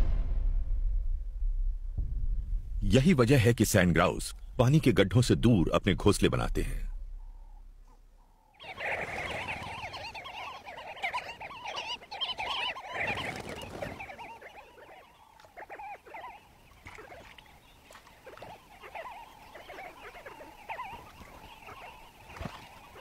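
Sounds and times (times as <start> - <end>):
flock of birds chattering: 6.0 - 23.0.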